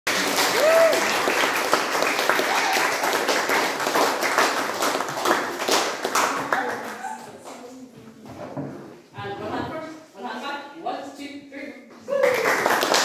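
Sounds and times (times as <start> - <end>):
audience clapping: 0.0 - 7.1, 12.2 - 13.0.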